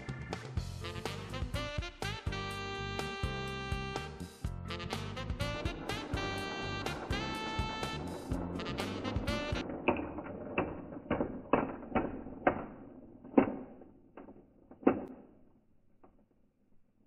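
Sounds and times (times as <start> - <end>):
model train wheels clicking: 4.7 - 15.0.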